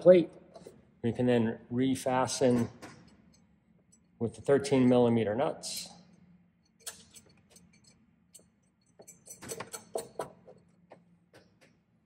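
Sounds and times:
metal nuts clinking: 6.6 - 10.4.

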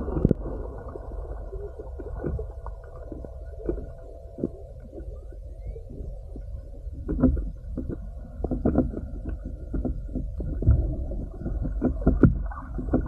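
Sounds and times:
underwater water rumble: 0.0 - 13.0
underwater clicks and knocks: 6.9 - 13.0.

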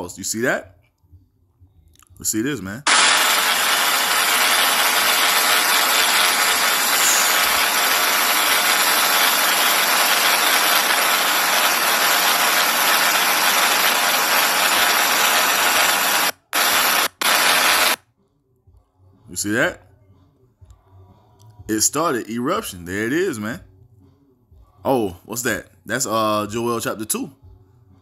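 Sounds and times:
helicopter engine and rotor noise: 2.9 - 18.0.

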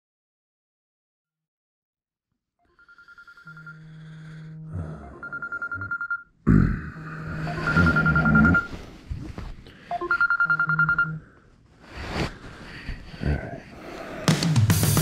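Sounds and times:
trilling electronic ring: 10.0 - 11.2.

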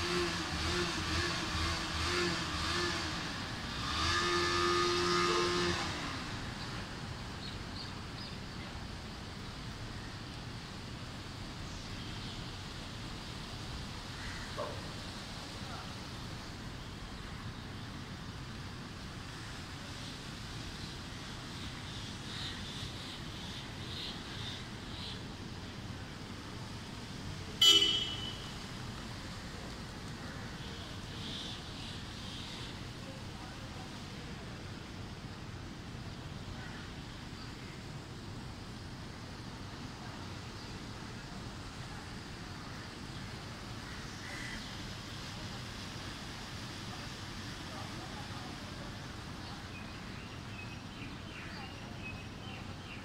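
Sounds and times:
heavy rain downpour: 23.6 - 53.0.

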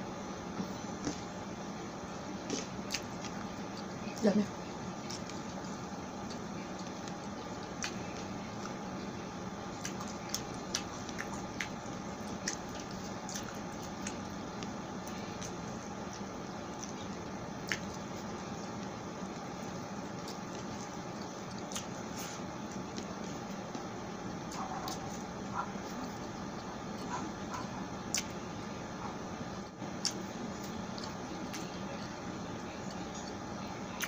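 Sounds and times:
person chewing with mouth clicks: 2.4 - 4.0, 5.0 - 8.8, 9.7 - 23.9, 24.5 - 28.4, 30.0 - 32.1.

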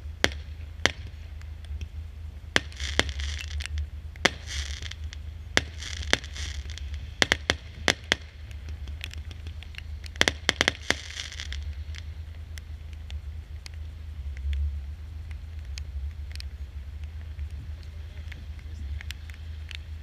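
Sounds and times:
fireworks bangs: 0.0 - 13.0
fireworks crackling: 0.0 - 20.0.

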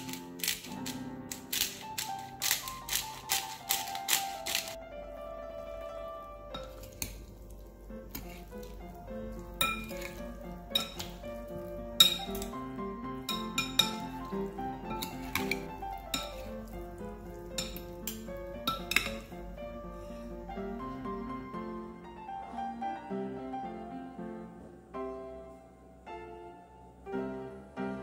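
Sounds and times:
background music: 0.0 - 28.0
metal spoons clinking on glass bowl: 9.6 - 11.2, 12.0 - 12.6, 13.2 - 16.7, 17.5 - 19.3.

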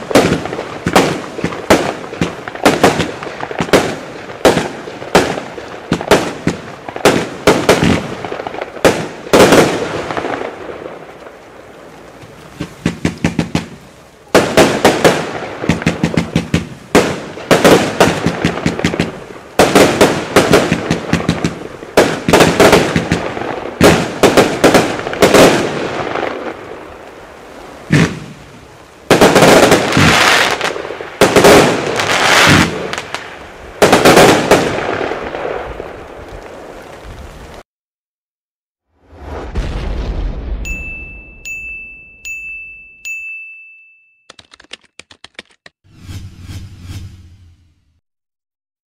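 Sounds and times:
fireworks firing: 0.0 - 11.6, 12.2 - 37.6.

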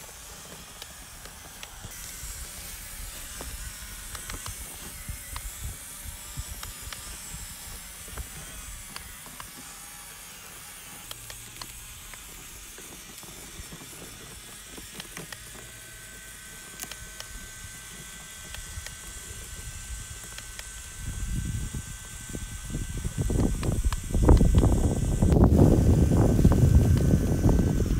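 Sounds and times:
sharp clicks and crackles: 0.0 - 9.7, 10.9 - 20.9, 23.2 - 25.6
rc truck motor whirring: 0.0 - 27.9
steady high whine: 0.0 - 27.9.

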